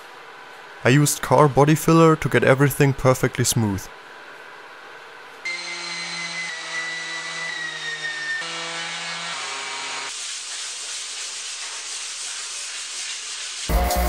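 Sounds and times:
electric sander running: 5.5 - 10.2
hand sanding with sanding block: 7.7 - 14.0.

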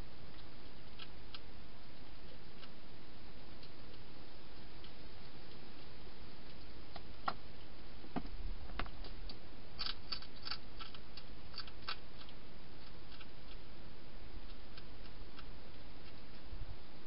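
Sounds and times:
steady hiss: 0.0 - 17.0
hedgehog crunching dry food: 9.0 - 13.7.

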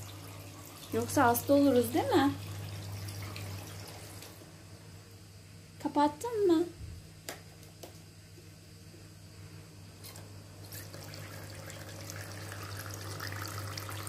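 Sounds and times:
low steady hum: 0.0 - 14.0
water trickling into plastic basin: 10.7 - 14.0.

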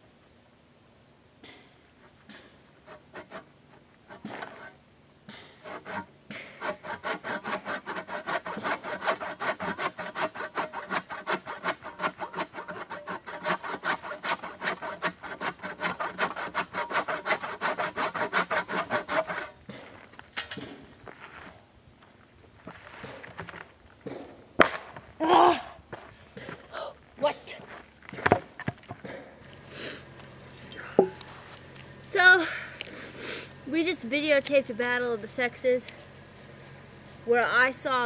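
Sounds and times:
hand saw cutting log: 2.3 - 19.8.

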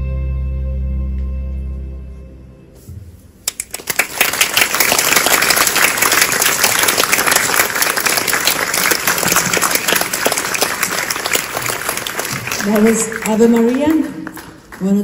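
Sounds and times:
audience applauding: 3.4 - 15.0.

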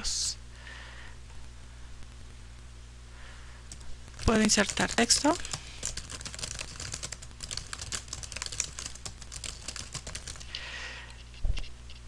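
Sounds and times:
typing on computer keyboard: 3.7 - 10.6.

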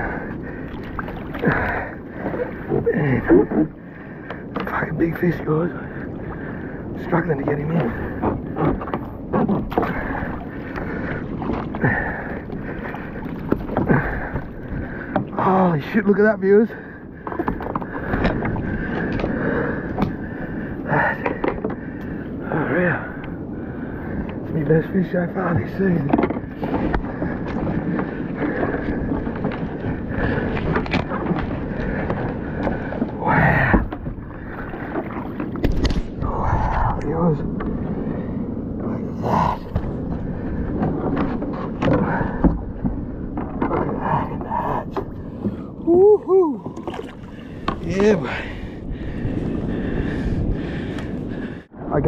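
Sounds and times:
water against boat: 0.0 - 52.0
wind buffeting microphone: 0.0 - 52.0
knocks and rubbing against hull: 7.3 - 16.2, 17.2 - 20.4, 25.4 - 36.2, 39.6 - 45.6, 46.7 - 51.1.

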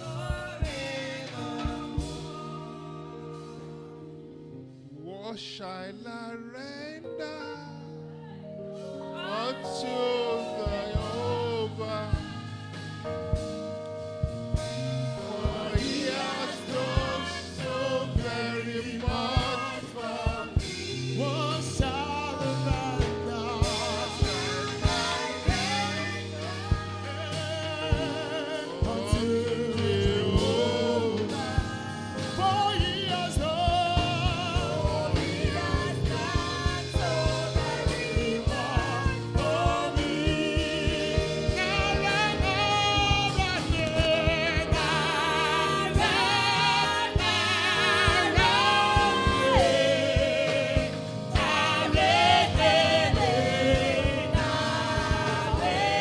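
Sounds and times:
band with bass and drums: 0.0 - 4.2, 10.1 - 56.0
man singing lead with vibrato: 4.9 - 8.1, 9.2 - 13.5, 14.6 - 56.0
voices singing along: 14.8 - 56.0.

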